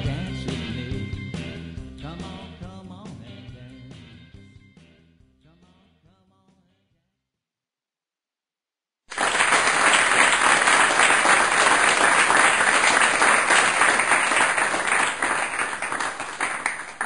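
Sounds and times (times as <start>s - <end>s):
crowd applauding: 9.1s - 17.0s.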